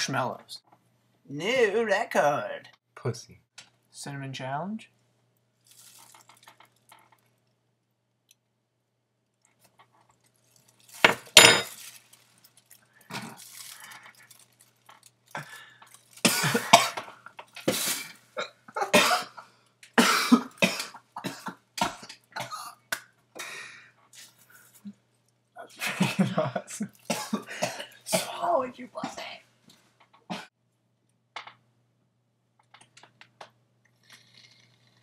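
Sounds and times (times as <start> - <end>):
person coughing hard: 16.2 - 17.1, 18.4 - 19.4, 20.0 - 22.8, 27.1 - 28.5, 30.3 - 30.5.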